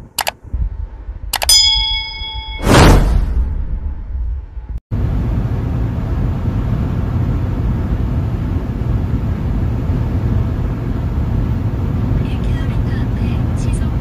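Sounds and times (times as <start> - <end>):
road and engine noise in car: 4.9 - 14.0.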